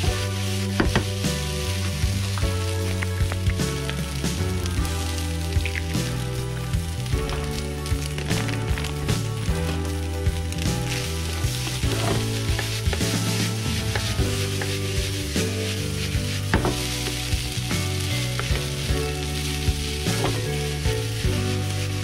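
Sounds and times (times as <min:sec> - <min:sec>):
background music: 0:00.0 - 0:22.0
rice sizzling in frying pan: 0:00.0 - 0:22.0.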